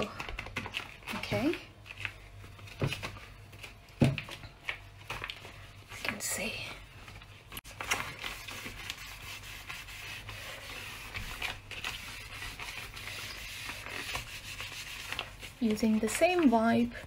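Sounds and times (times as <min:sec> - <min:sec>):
wipe scrubbing steel cooktop: 0:08.5 - 0:15.6.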